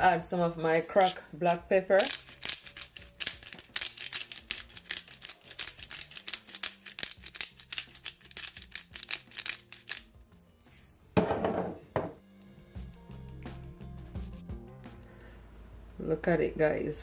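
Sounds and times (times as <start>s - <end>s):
pepper grinder cracking peppercorns: 0.8s - 10.3s.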